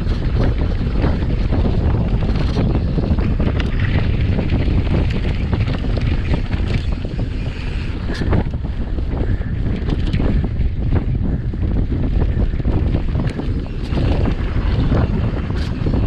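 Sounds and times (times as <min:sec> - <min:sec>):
bike rattling over rocky ground: 0:00.0 - 0:16.0
wind buffeting microphone: 0:00.0 - 0:16.0.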